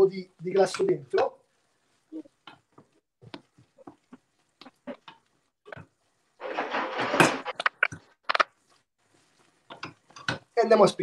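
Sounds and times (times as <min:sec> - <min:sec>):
thick food stirred in pot: 0:07.8 - 0:10.6.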